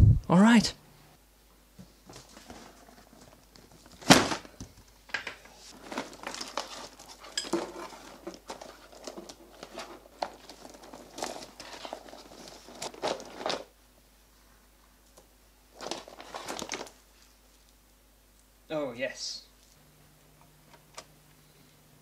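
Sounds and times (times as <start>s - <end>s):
plastic connectors and wires clattering: 2.3s - 13.7s, 15.8s - 17.0s
hands rummaging through cardboard box: 5.6s - 13.7s, 15.7s - 17.0s.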